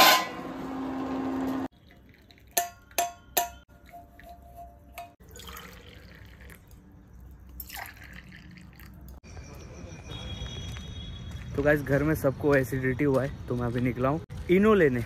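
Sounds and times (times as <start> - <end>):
tea being poured: 1.7 - 3.0, 5.2 - 9.2
glassware clinking: 2.4 - 5.7.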